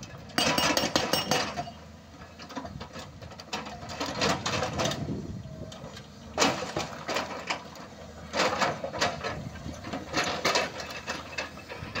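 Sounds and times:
excavator engine running: 0:00.0 - 0:12.0
hydraulic rock breaker hammering: 0:00.2 - 0:01.8.

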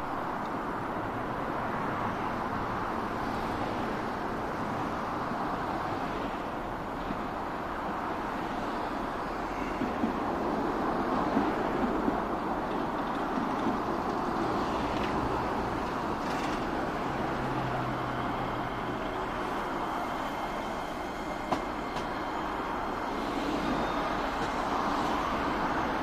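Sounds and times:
electric train approaching: 0:00.0 - 0:26.0
road traffic noise: 0:00.0 - 0:26.0
sharp train clacks: 0:09.6 - 0:26.0.

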